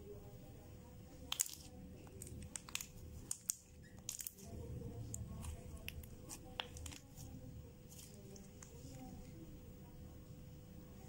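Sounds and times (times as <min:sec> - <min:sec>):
slime squelching by hand: 0:01.3 - 0:09.3.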